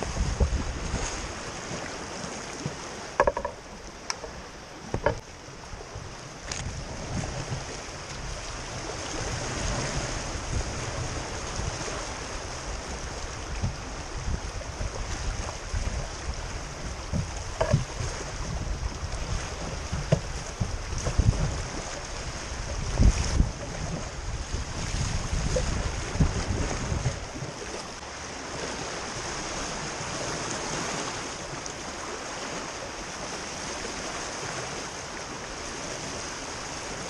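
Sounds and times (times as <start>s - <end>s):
wind rumble on microphone: 0.0s - 37.0s
sharp knocks: 3.2s - 3.6s, 4.9s - 5.2s, 17.6s - 17.9s.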